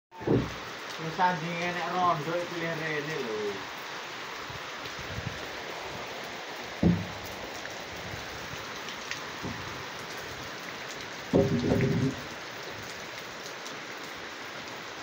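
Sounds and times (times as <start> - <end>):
rain hissing: 0.1 - 15.0
heavy thump: 0.2 - 0.6, 6.8 - 7.2
faint knocks: 6.8 - 7.2.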